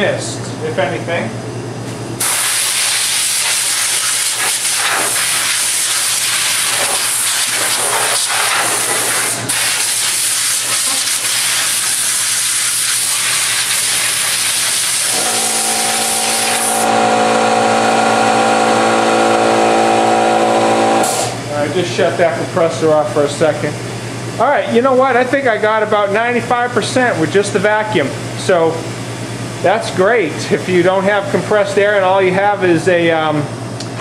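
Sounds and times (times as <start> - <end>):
compressed air hissing: 2.2 - 16.9, 20.8 - 21.4
air compressor motor humming: 2.2 - 24.8.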